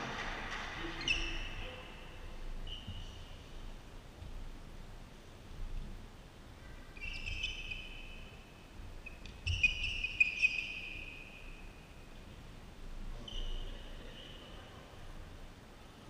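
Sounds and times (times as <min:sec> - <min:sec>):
shoes squeaking on floor: 0:02.6 - 0:03.5, 0:07.0 - 0:08.1, 0:09.0 - 0:10.9.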